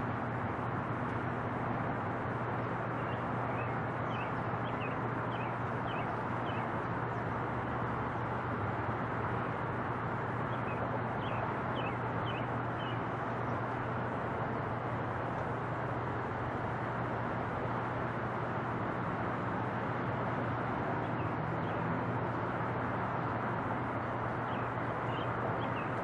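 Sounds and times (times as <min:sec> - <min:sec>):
bird chirping: 0:03.0 - 0:06.7, 0:10.5 - 0:13.0, 0:24.5 - 0:26.0.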